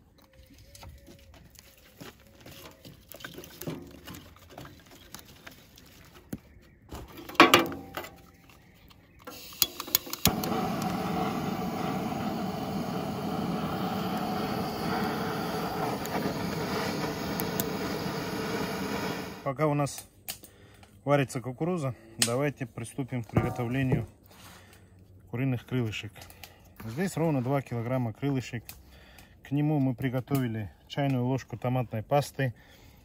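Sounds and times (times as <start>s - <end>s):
gas torch hissing: 9.3s - 19.5s.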